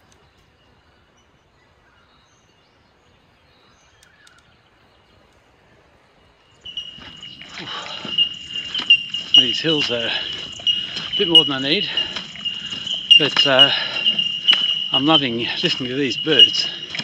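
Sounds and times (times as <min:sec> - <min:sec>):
faint chirps: 0:06.4 - 0:17.0
loud high ringing call: 0:06.6 - 0:17.0
faint high trill: 0:06.7 - 0:17.0.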